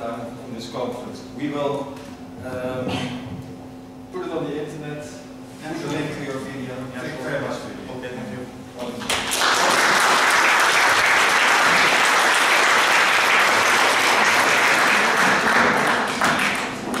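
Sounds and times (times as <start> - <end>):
audience applause: 9.1 - 17.0.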